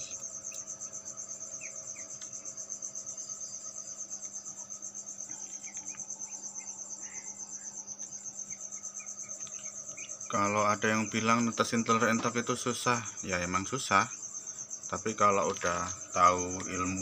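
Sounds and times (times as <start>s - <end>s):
cricket trilling: 0.0s - 17.0s.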